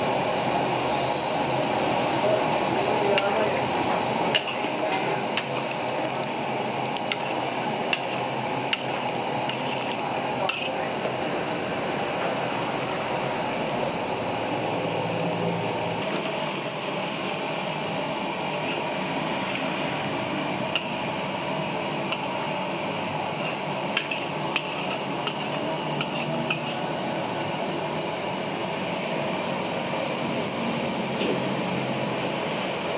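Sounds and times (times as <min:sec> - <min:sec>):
steady background hum: 0:00.0 - 0:32.9
stew bubbling and sizzling: 0:00.0 - 0:32.9.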